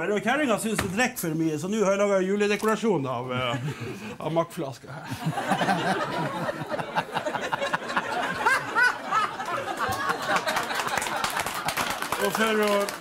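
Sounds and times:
audience laughing: 0:05.0 - 0:12.6.

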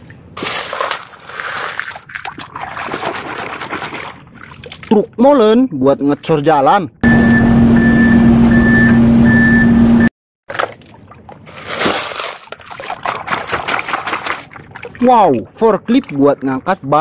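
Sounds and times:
hand splashing in muddy water: 0:00.0 - 0:05.0, 0:10.5 - 0:15.4
short repeating beep: 0:07.0 - 0:10.1
truck engine drone: 0:07.0 - 0:10.1.

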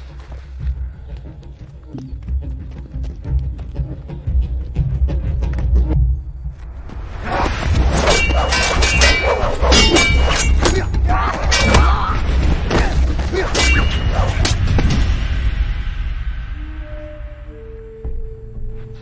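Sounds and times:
metallic sword clangs: 0:08.0 - 0:12.1, 0:13.5 - 0:14.6.

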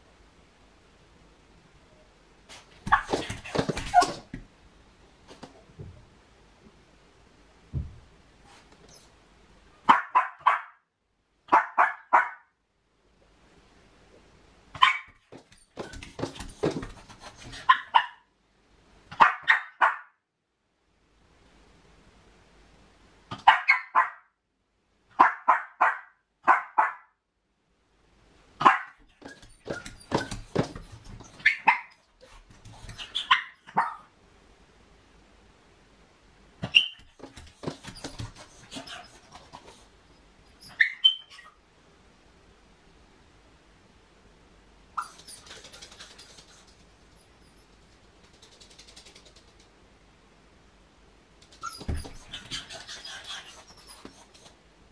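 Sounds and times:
dull thump: 0:07.7 - 0:08.1
dog barking: 0:09.8 - 0:10.8, 0:11.5 - 0:12.5, 0:14.8 - 0:15.2, 0:17.6 - 0:18.3, 0:19.1 - 0:20.2, 0:23.3 - 0:24.3, 0:25.2 - 0:27.1, 0:28.6 - 0:29.0, 0:31.4 - 0:32.0, 0:33.1 - 0:34.1
dog claws scratching door: 0:29.1 - 0:31.5, 0:36.7 - 0:39.7, 0:51.5 - 0:54.5.

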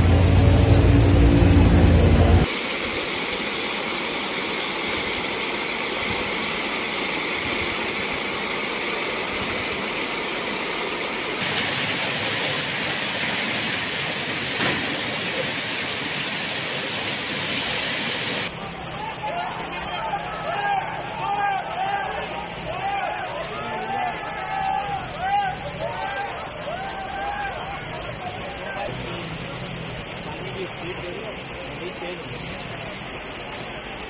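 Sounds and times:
vehicle engine running: 0:00.0 - 0:02.5
floodwater rushing: 0:00.0 - 0:34.0
heavy rain: 0:00.0 - 0:34.0.

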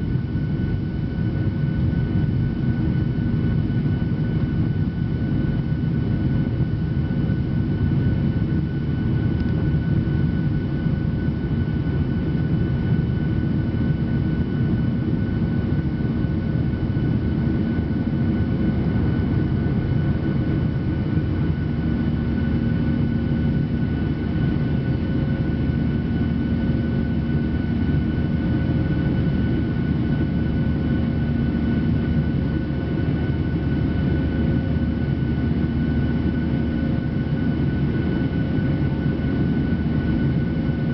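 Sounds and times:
faint steady hums: 0:00.0 - 0:40.9
jet engine and airflow noise: 0:00.0 - 0:40.9.

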